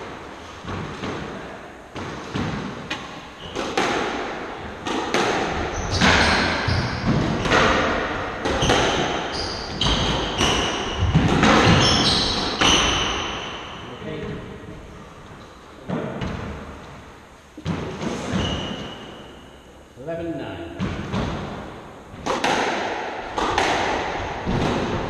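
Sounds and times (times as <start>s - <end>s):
squash ball hitting rackets and walls: 0.0s - 14.4s, 15.8s - 19.6s, 20.8s - 25.0s
shoe squeaks on wooden floor: 5.7s - 7.5s, 8.6s - 11.0s, 11.6s - 13.5s, 18.1s - 19.6s.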